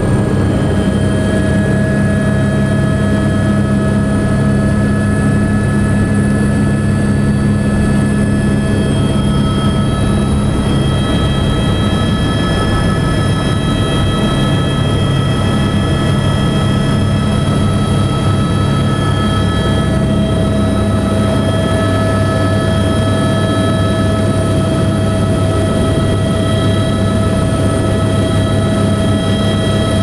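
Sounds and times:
helicopter engine and rotor: 0:00.0 - 0:30.0
high whine: 0:00.0 - 0:30.0.

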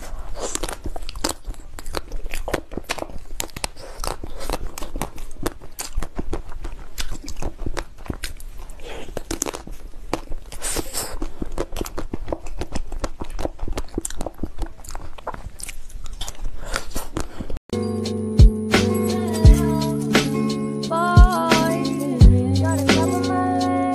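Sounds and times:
person chewing cake: 0:00.0 - 0:17.7.

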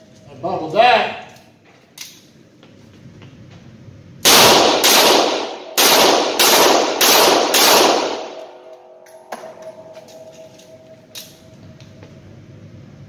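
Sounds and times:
revolver shots echoing: 0:04.3 - 0:09.9.

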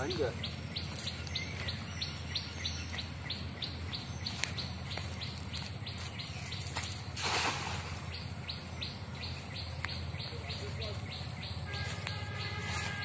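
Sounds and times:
net splashing into water: 0:07.2 - 0:08.0.

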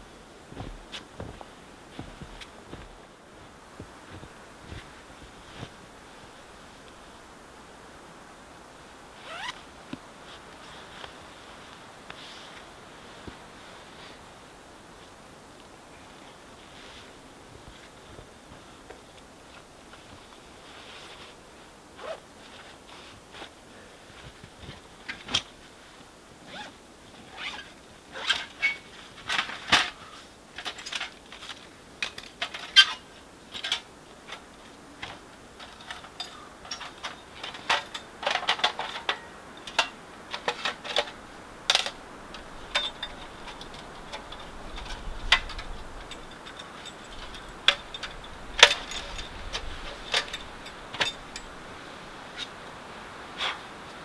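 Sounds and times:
gear rustling: 0:00.0 - 0:07.4, 0:09.2 - 0:09.6, 0:30.6 - 0:52.7
metallic clinks and knocks: 0:35.6 - 0:51.6.

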